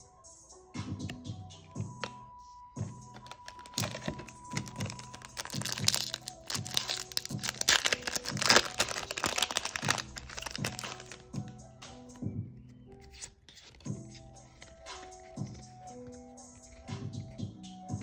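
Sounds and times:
foil wrapper crinkling and tearing: 3.1 - 11.4.

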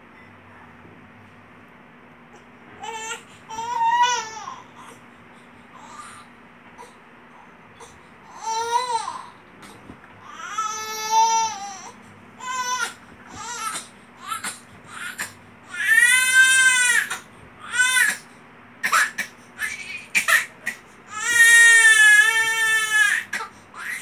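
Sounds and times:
infant crying: 2.8 - 5.0, 5.8 - 7.0, 7.8 - 9.4, 10.2 - 18.2, 21.1 - 24.0.

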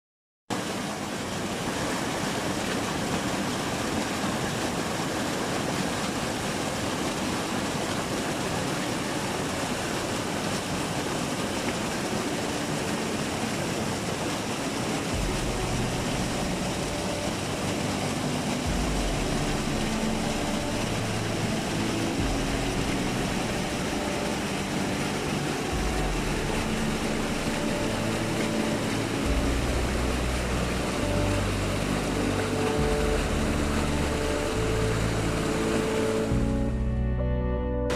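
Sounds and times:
water rushing and splashing: 0.5 - 37.2
low held tones: 15.0 - 37.9.

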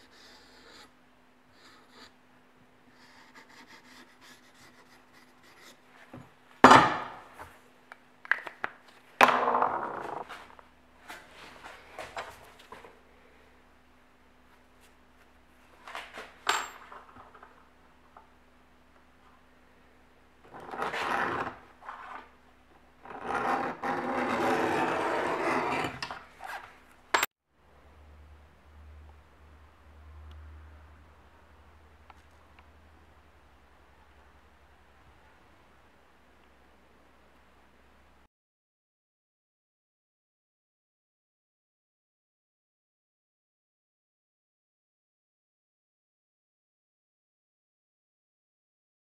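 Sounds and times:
faint low hum: 0.0 - 38.3
metal blade clattering on wood: 16.4 - 16.9
metal scratching on wood: 20.5 - 22.3, 23.0 - 26.8
file rasping on machete blade: 23.1 - 26.6.

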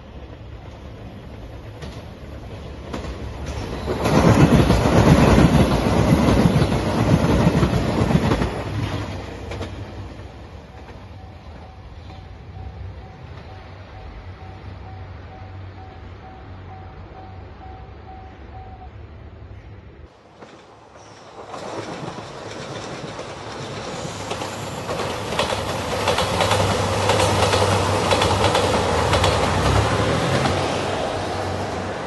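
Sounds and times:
diesel train passing: 0.0 - 32.0
level crossing warning bell: 10.6 - 18.9.

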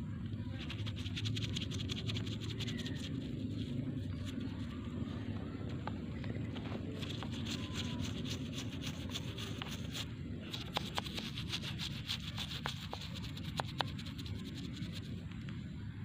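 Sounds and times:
low steady rumble: 0.0 - 16.0
toothbrush scrubbing bark: 0.6 - 4.8, 6.8 - 15.1.

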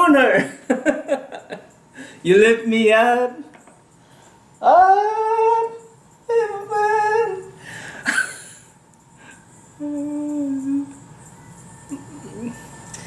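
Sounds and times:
man singing: 4.6 - 7.6.

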